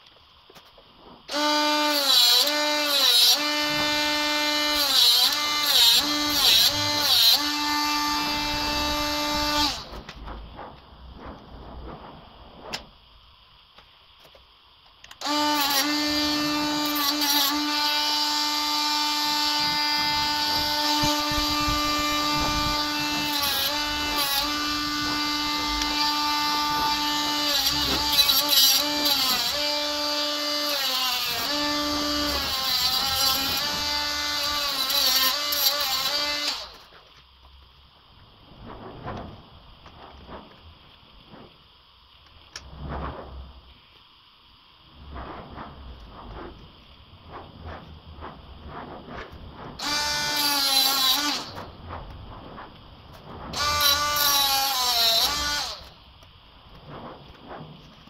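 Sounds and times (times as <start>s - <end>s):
rotary tool cutting plastic: 1.2s - 10.4s, 15.0s - 37.2s, 48.7s - 58.0s.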